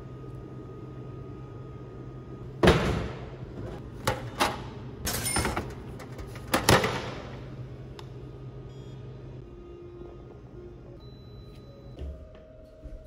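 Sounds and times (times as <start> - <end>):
steady low hum: 0.0 - 5.1.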